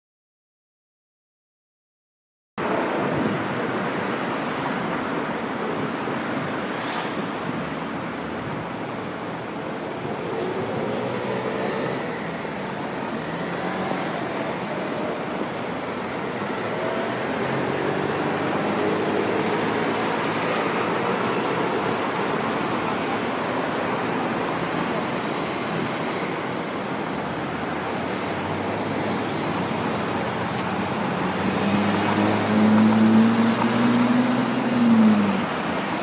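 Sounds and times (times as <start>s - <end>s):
road traffic passing: 2.6s - 36.0s
vehicle engine pulling away: 30.0s - 35.8s.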